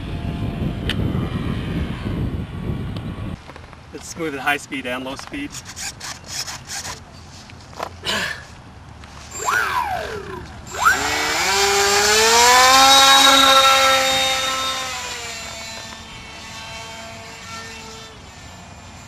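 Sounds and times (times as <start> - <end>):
model plane motor whine: 9.3 - 19.0.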